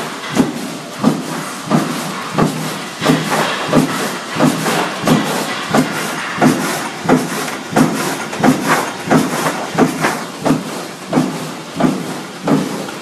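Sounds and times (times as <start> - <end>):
machine running: 0.0 - 13.0
sharp mechanical knock: 0.2 - 12.9.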